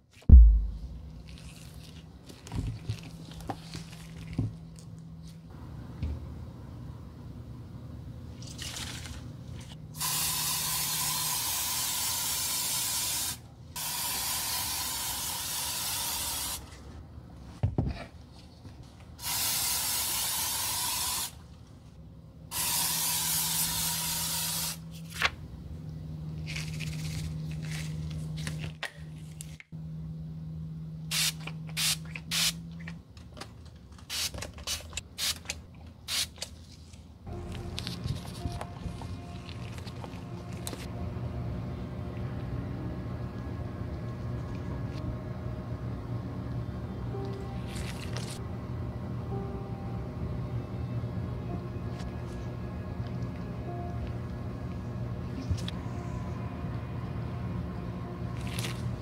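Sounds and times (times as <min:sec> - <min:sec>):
aerosol spray hissing: 0:10.0 - 0:16.6, 0:19.2 - 0:21.3, 0:22.5 - 0:24.8.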